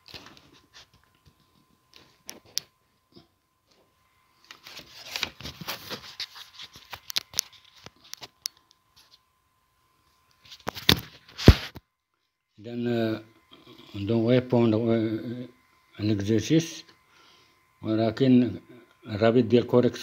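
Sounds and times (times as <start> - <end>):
rustling handling noise: 3.6 - 9.3.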